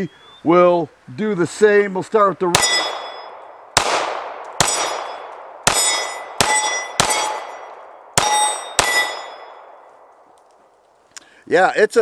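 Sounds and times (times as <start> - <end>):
pistol shots: 2.5 - 10.1
steel plate target clanging: 2.6 - 3.4, 4.6 - 9.7.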